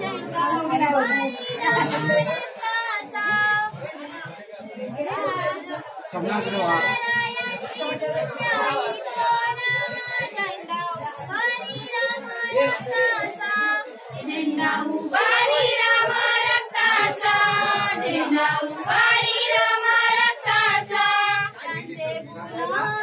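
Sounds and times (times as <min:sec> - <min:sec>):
women singing folk song: 0:00.0 - 0:04.0, 0:06.7 - 0:23.0.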